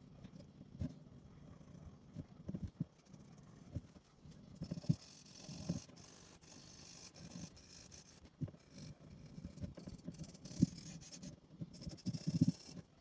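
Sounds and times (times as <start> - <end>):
pencil scratching on paper: 2.6 - 13.0.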